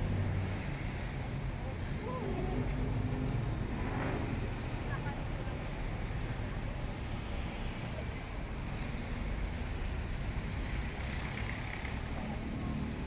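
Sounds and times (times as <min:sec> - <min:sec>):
traffic rumble: 0:00.0 - 0:13.0.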